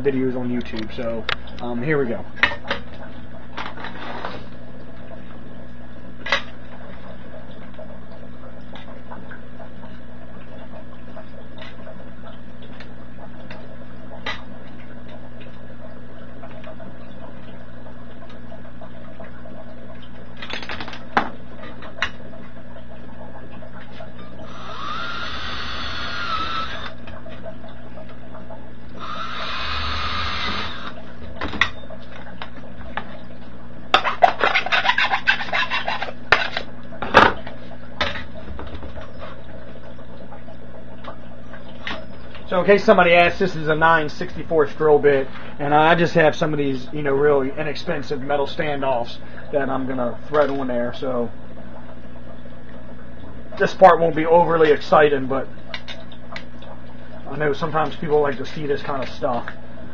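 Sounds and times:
cordless drill drilling sheet metal: 24.4 - 27.0, 29.0 - 31.0.

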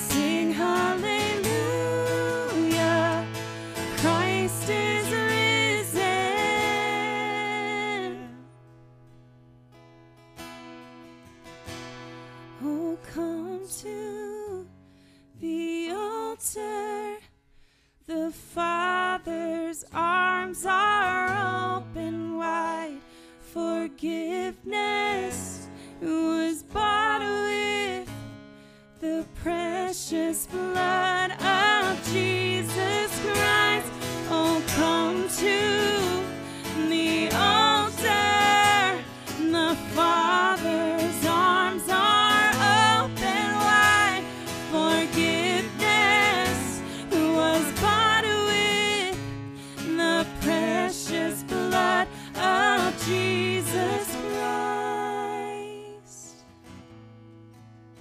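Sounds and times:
woman singing: 0.0 - 8.6, 12.6 - 17.4, 18.0 - 28.3, 29.0 - 56.5
acoustic guitar strumming: 0.0 - 12.6, 29.5 - 58.0.

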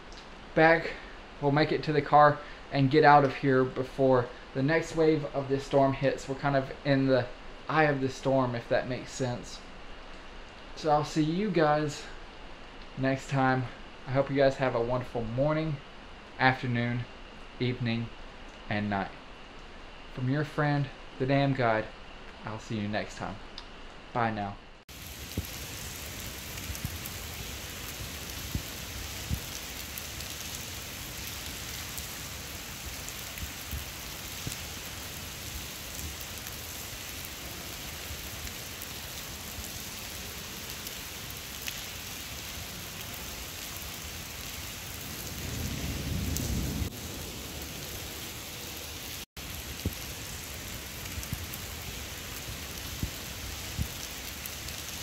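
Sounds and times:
rain falling: 24.8 - 55.0
thunder rumble: 24.9 - 54.7.

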